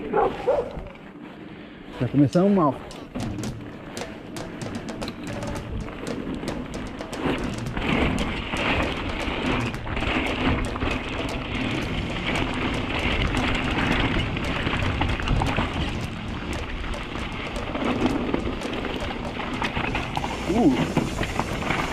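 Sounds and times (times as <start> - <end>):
bike clicks and rattles: 0.0 - 21.9
bike tyres on wet gravel: 0.0 - 21.9
rain: 11.2 - 21.9.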